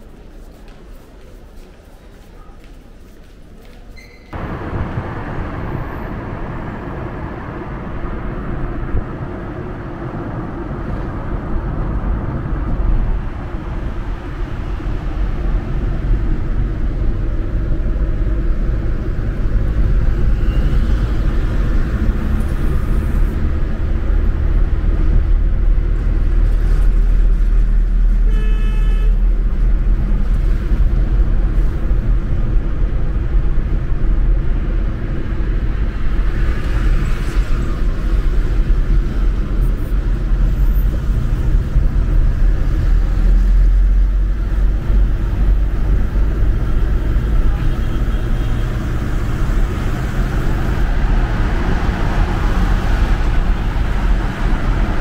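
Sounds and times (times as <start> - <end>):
engine and road rumble: 0.0 - 55.0
car horn toot: 28.3 - 29.2.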